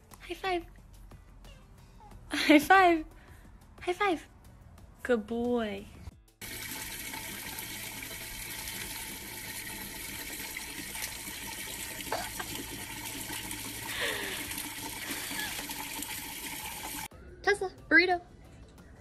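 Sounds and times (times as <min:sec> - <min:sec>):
tap water splashing into watering can: 0:06.4 - 0:17.1.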